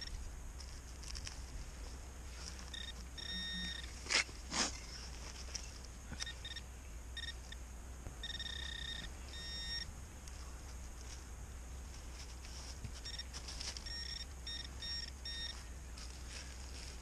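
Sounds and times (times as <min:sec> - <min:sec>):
metal detector beeps: 0:02.5 - 0:04.0, 0:06.2 - 0:07.6, 0:08.2 - 0:09.9, 0:12.9 - 0:16.6.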